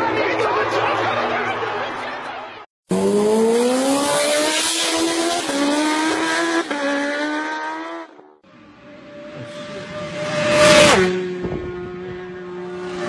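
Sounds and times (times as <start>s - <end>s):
engine accelerating hard: 2.9s - 13.0s.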